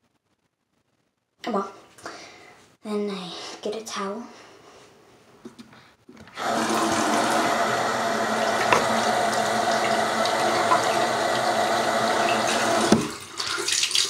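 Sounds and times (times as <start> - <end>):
water running into basin: 6.3 - 14.0
faucet turned on: 6.4 - 14.0.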